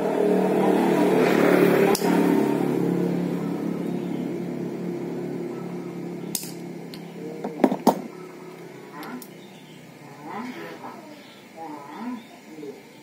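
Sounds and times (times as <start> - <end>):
vehicle engine hum: 0.0 - 12.8
metallic plier clicks: 6.3 - 7.0.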